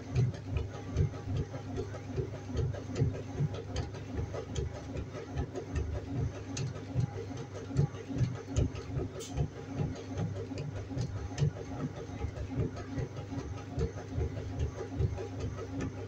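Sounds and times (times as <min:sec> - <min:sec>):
washing machine running: 0:00.0 - 0:16.0.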